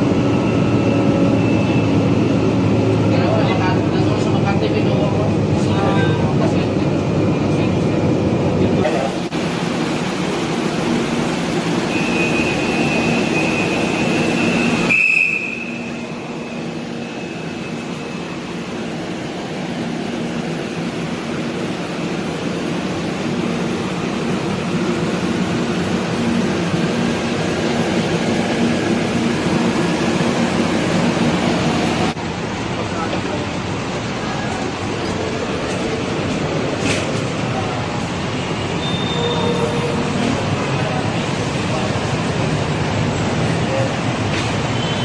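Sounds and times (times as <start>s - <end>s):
vehicle rumbling ride noise: 15.8s - 45.0s
high steady squeal: 38.3s - 40.2s.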